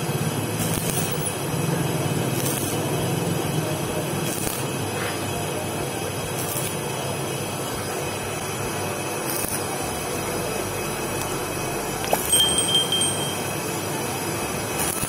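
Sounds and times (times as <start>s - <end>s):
welding arc crackling and hissing: 0.0s - 15.0s
brief high chime: 12.2s - 13.5s.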